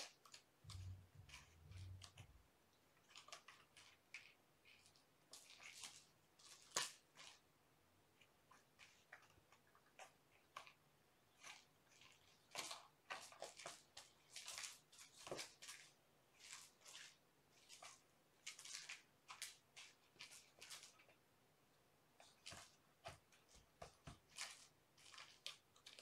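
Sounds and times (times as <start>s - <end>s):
kitten claws scraping cardboard: 0.0s - 2.3s, 8.2s - 21.2s, 22.2s - 26.0s.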